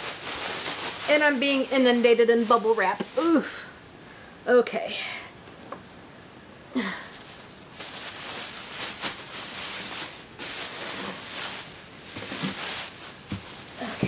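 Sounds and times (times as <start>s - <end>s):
bubble wrap crinkling: 0.0s - 3.8s, 7.1s - 14.0s.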